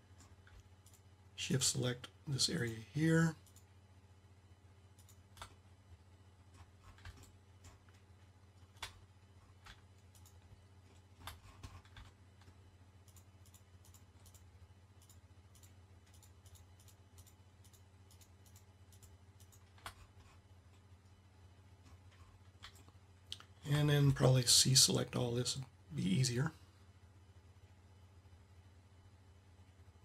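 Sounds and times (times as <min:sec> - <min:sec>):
low steady hum: 0:00.0 - 0:30.0
mouse and keyboard clicks: 0:09.6 - 0:20.3.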